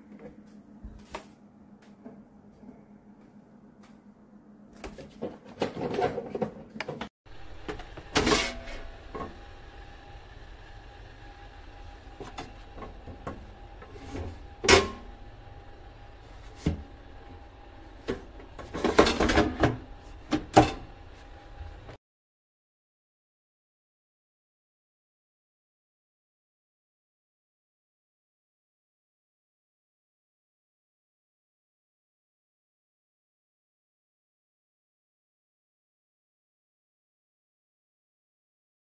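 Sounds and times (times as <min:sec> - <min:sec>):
faint steady hum: 0:06.8 - 0:22.0.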